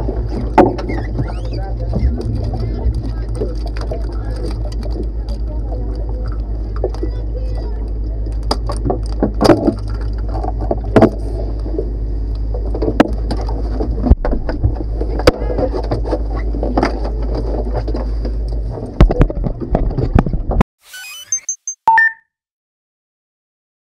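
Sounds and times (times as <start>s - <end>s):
steady low hum: 0.0s - 20.6s
faint high electronic tones: 20.8s - 22.2s.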